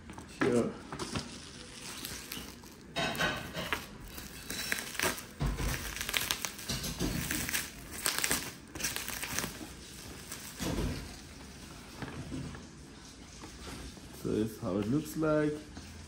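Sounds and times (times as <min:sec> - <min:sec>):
packaging crinkling and rustling: 0:00.5 - 0:12.7.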